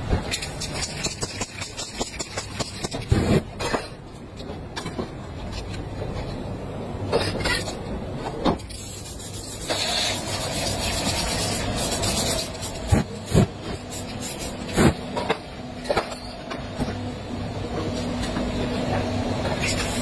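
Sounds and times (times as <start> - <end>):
spray paint can hissing: 8.8 - 12.8, 13.9 - 14.5.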